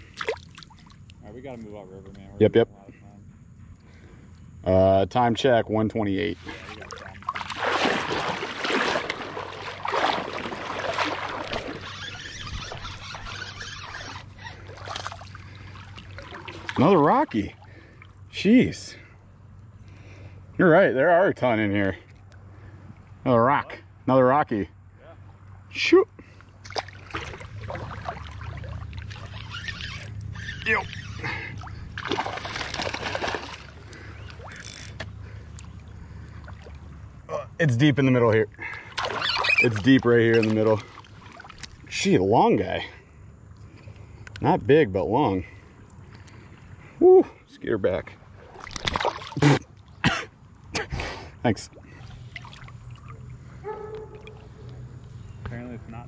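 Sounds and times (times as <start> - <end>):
river water sloshing around legs: 0.0 - 1.2, 6.3 - 18.4, 25.2 - 37.3, 38.2 - 42.3, 48.1 - 51.0, 51.6 - 55.4.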